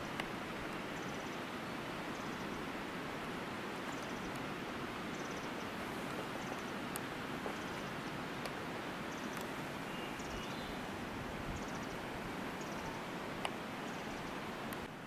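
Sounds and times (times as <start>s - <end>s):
outdoor background hiss: 0.0s - 15.0s
faint high chirping: 5.1s - 5.7s, 7.5s - 8.2s, 9.1s - 10.9s, 11.5s - 12.0s, 12.6s - 13.1s.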